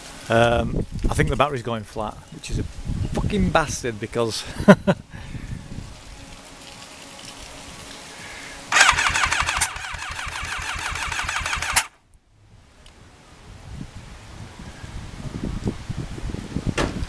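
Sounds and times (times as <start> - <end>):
electric starter cranking engine: 8.7 - 12.0.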